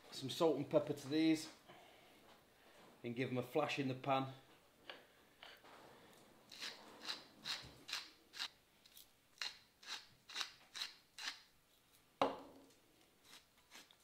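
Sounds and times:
hand grinder grinding: 6.5 - 8.5, 9.4 - 11.4
knock: 12.2 - 12.5.

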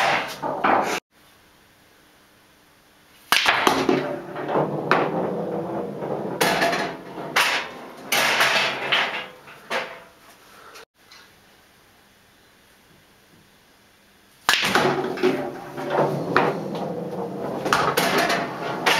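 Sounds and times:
pool balls clacking: 0.0 - 1.0, 3.3 - 10.2, 14.5 - 18.9
pool balls rolling and rattling: 0.0 - 1.0, 3.3 - 10.2, 14.5 - 18.9
cue ball knock: 3.4 - 9.0, 14.5 - 18.9.

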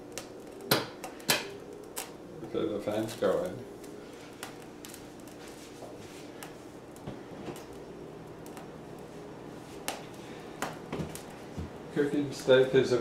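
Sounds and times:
range hood fan humming: 0.0 - 13.0.

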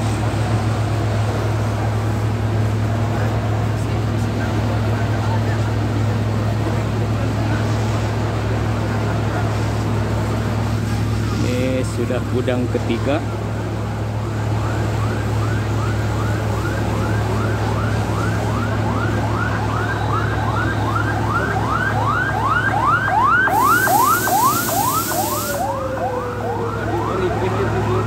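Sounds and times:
fire engine siren yelping: 0.0 - 28.0
hiss burst: 23.5 - 25.8.

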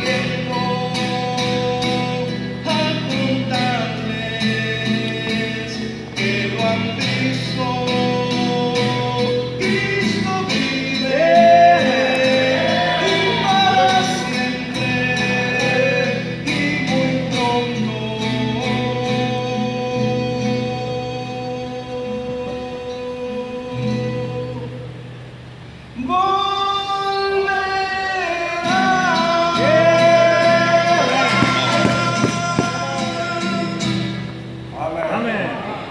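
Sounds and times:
man singing: 0.0 - 24.8, 26.0 - 34.2
strummed acoustic guitar: 0.0 - 34.9
man singing held note: 30.4 - 33.8.

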